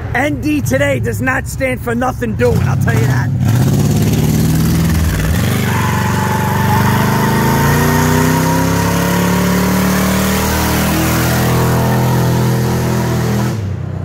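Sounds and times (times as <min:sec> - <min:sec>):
car engine revving hard: 0:03.3 - 0:13.8
tire squeal: 0:05.0 - 0:13.7.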